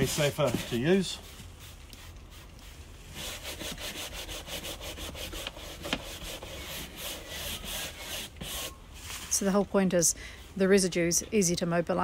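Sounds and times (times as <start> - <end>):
hand brush scrubbing wet wood: 0.0 - 9.5.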